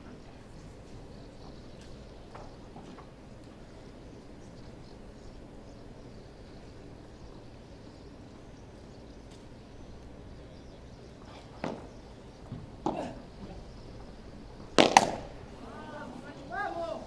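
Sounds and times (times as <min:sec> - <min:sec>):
crowd murmuring: 0:10.2 - 0:17.0
racket hitting ball: 0:14.7 - 0:15.4.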